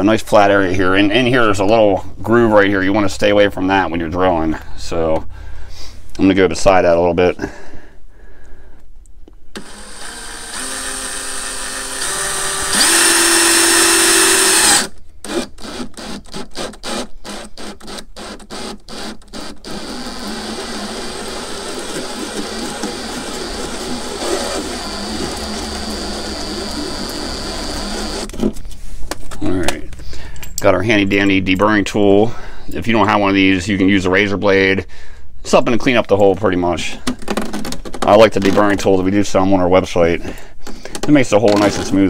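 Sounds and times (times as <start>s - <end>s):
cordless drill motor whine: 9.6s - 28.4s.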